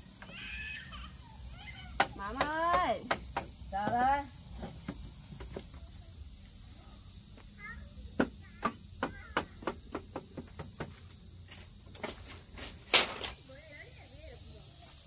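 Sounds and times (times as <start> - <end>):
insects droning trill: 0.0 - 15.0
sharp knocks: 2.0 - 5.6, 8.2 - 11.0.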